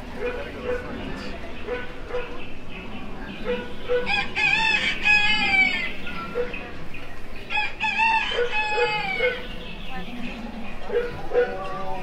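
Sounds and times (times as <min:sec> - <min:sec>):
rooster crowing: 0:04.1 - 0:05.9, 0:07.5 - 0:09.4.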